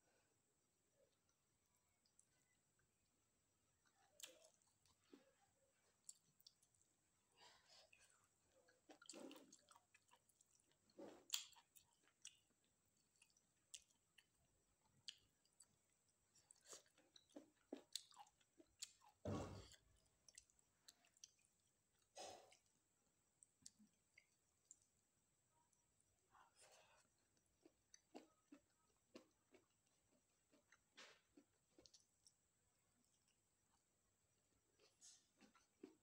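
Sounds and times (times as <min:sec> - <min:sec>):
chewing rice: 0:03.8 - 0:34.0
wet mouth clicks and squishes: 0:11.3 - 0:12.4.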